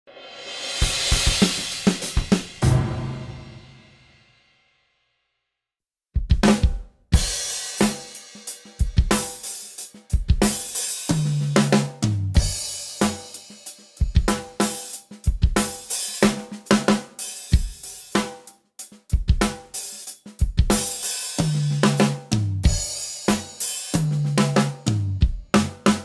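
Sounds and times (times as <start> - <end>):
drum kit groove: 0.1 - 4.3, 6.2 - 26.0
ringing tom hits: 2.6 - 4.2.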